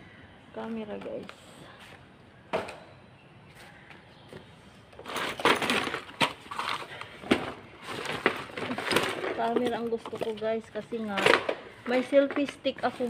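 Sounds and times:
rummaging through plastic bags: 5.0s - 13.0s.

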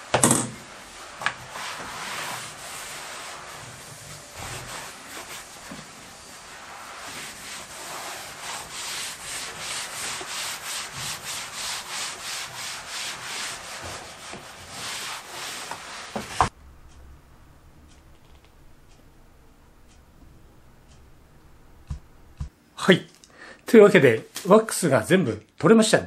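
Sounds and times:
cloth scrubbing wooden floor: 0.0s - 16.5s.

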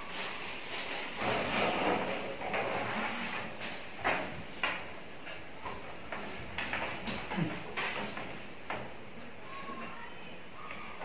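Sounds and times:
plastic conduit scraping and rustling: 0.0s - 4.4s.

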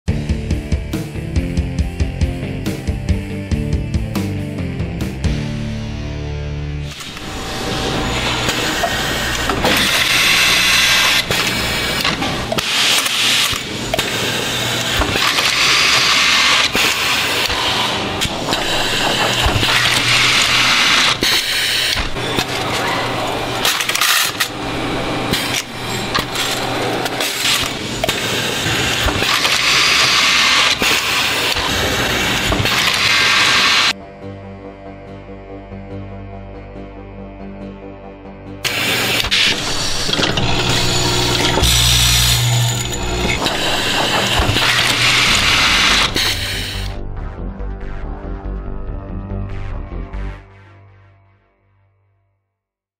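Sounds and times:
screws being fed and driven: 6.9s - 33.9s, 38.7s - 46.9s.

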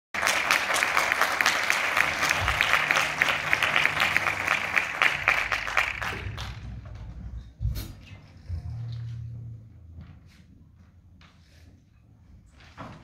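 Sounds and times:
audience applauding: 0.2s - 7.0s.

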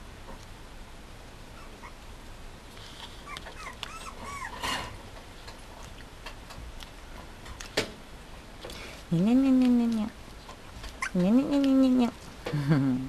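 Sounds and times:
puppy whimpering: 1.5s - 2.0s, 3.2s - 4.6s, 11.0s - 11.3s.

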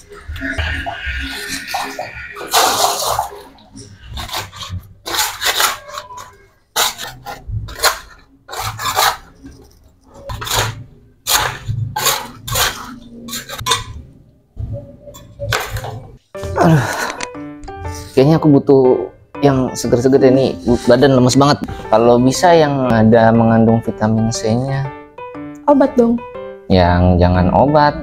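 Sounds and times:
metal scraper scraping floor: 1.4s - 14.0s.

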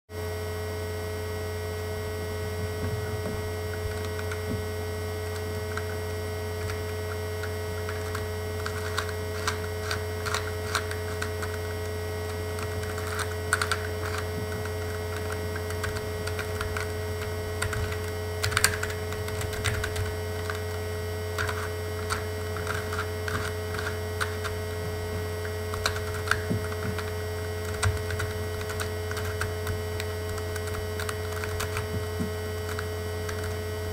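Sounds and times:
loud electrical hum: 0.1s - 33.9s
plastic puzzle cube clicking: 6.6s - 24.6s, 25.4s - 33.6s.

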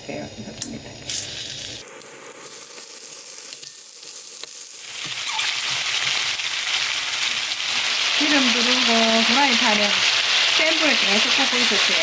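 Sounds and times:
chicken sizzling in hot oil: 0.3s - 12.0s.

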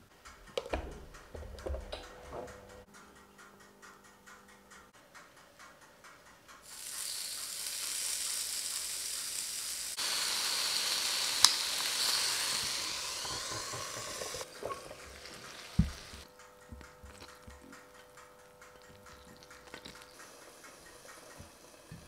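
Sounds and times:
chicken sizzling on a grill: 6.6s - 16.2s, 20.0s - 22.0s.

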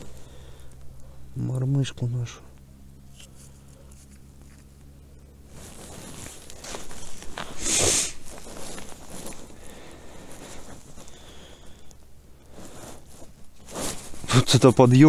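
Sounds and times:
clothing rustling: 3.0s - 15.0s.

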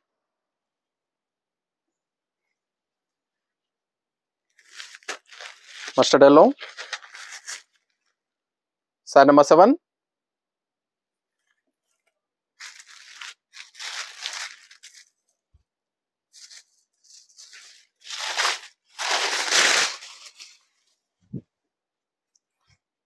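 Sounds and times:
fabric rustling: 4.6s - 8.1s, 11.4s - 15.3s, 16.3s - 21.0s.

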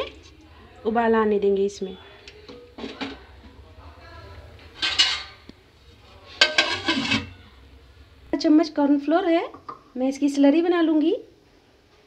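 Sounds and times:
metal utensils clinking on cookware: 4.6s - 5.4s, 6.3s - 7.4s.

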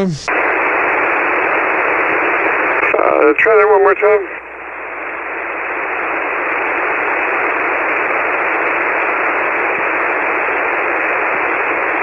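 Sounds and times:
radio receiver static hiss: 0.0s - 8.6s.

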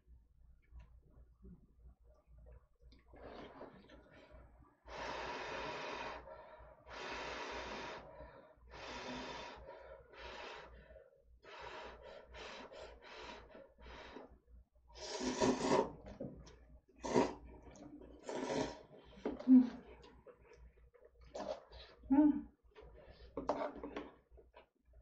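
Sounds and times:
noodles being slurped: 15.0s - 16.2s, 17.0s - 18.9s.

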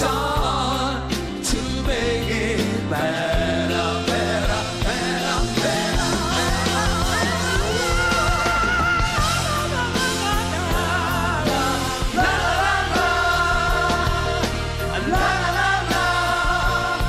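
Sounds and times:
people singing together: 0.0s - 17.0s
pop-rock band playing: 0.0s - 17.0s
drum beat: 3.2s - 17.0s.

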